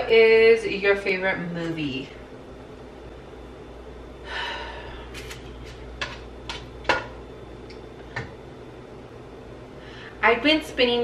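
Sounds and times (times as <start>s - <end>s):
person sighing: 4.2s - 5.1s.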